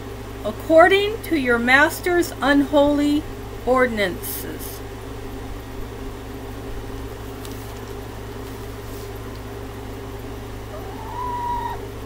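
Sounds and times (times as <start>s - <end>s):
low room hum: 0.0s - 12.0s
hen calling: 10.7s - 12.0s.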